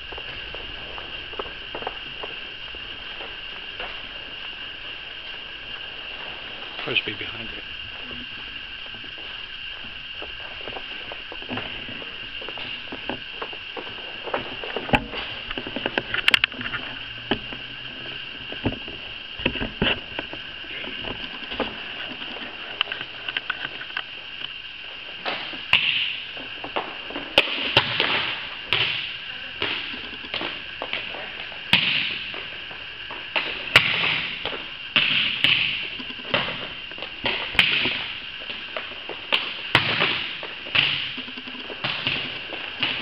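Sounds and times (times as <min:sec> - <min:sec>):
balls bouncing on gym floor: 0:25.2 - 0:32.5, 0:33.1 - 0:43.0
volleyballs struck by hand: 0:25.3 - 0:26.2, 0:27.4 - 0:31.1, 0:31.7 - 0:32.4, 0:33.3 - 0:38.2, 0:39.3 - 0:43.0.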